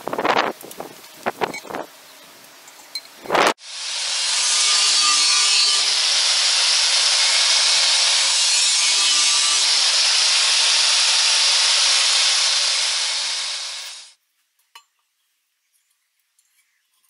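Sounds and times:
angle grinder cutting steel: 0:03.6 - 0:14.2.

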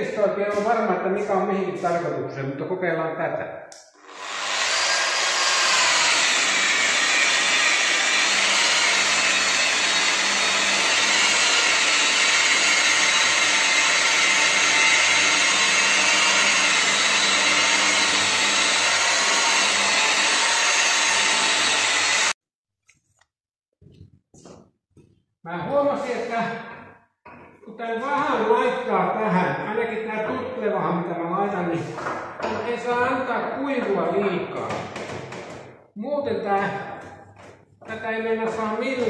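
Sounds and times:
electric polisher running: 0:04.0 - 0:22.4.

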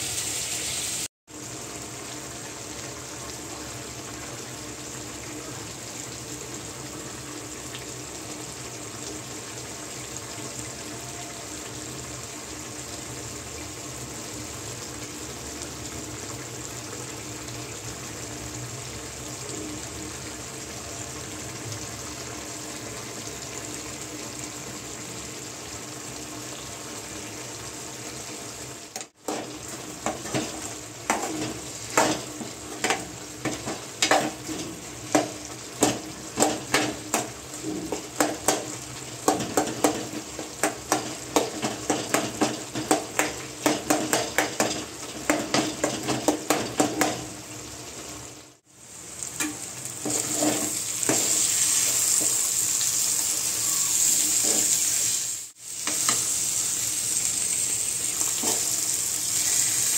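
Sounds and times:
food sizzling in a pan: 0:00.0 - 0:59.9
spoon scraping against pan: 0:49.4 - 0:52.5.

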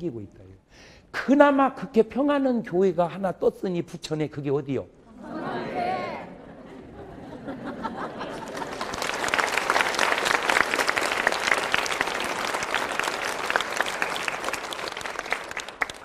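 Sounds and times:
murmur of voices: 0:05.1 - 0:06.7
congregation applauding: 0:08.2 - 0:16.0.

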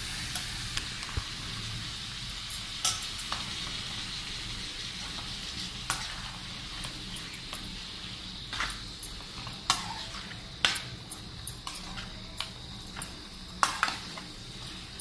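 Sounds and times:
faint frying sizzle: 0:00.0 - 0:15.0
metal spatula scraping a pan: 0:04.9 - 0:07.5, 0:08.4 - 0:10.9.

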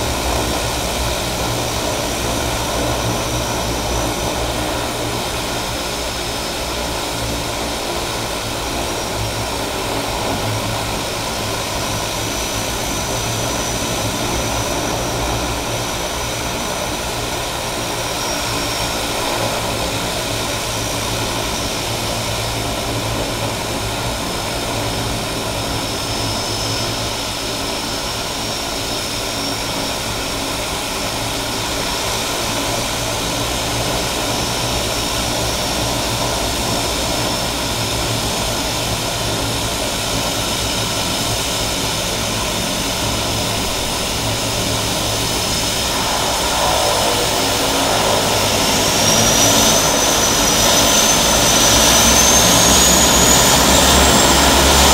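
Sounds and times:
high turbine whine: 0:00.0 - 0:54.9
seaplane propeller and engine drone: 0:00.0 - 0:54.9.

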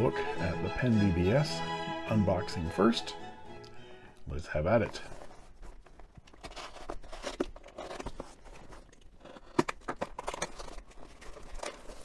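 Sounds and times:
packing tape tearing: 0:05.2 - 0:12.0.

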